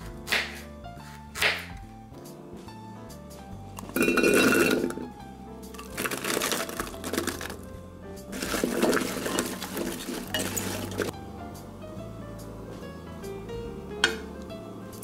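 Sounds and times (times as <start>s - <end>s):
background music: 0.0s - 15.0s
potatoes tumbling into a pot: 3.8s - 5.0s, 5.8s - 7.6s, 8.3s - 11.1s
vegetables rustling and knocking: 5.8s - 7.6s, 8.3s - 11.1s.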